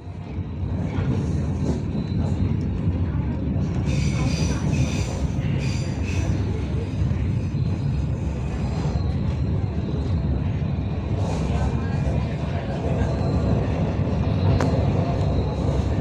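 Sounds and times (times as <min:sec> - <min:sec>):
train rumbling from inside: 0:00.0 - 0:16.0.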